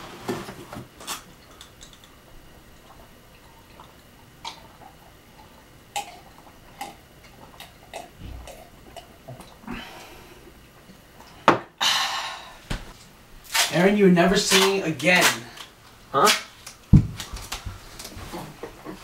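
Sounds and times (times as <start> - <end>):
people gulping drinks: 1.4 - 10.4.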